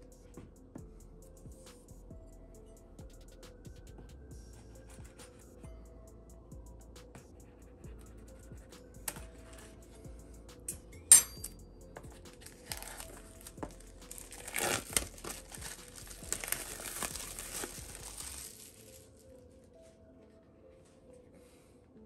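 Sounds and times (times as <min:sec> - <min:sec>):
plastic wrap tearing and crinkling: 0:12.4 - 0:19.2.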